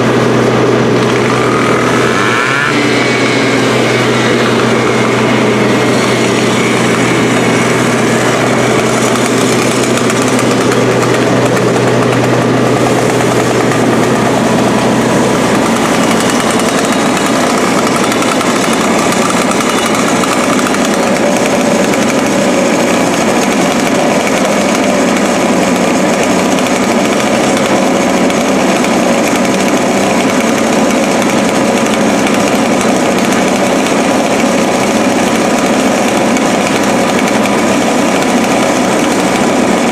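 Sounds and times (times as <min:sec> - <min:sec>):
low hum: 0:00.0 - 0:25.6
mechanical drone: 0:00.0 - 0:39.9
fire hose water spraying: 0:02.8 - 0:39.9.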